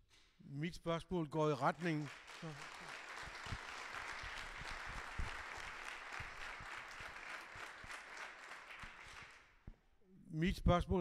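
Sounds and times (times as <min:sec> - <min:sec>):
audience applauding: 0:01.7 - 0:09.6.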